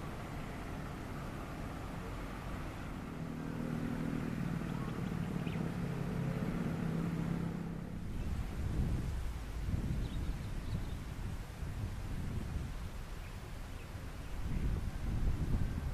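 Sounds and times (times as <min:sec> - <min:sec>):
dump truck diesel engine: 0:00.0 - 0:08.2.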